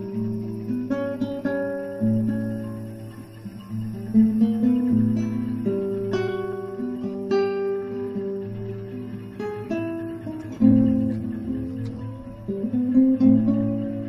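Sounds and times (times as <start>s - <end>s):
acoustic guitar music: 0.0s - 14.0s.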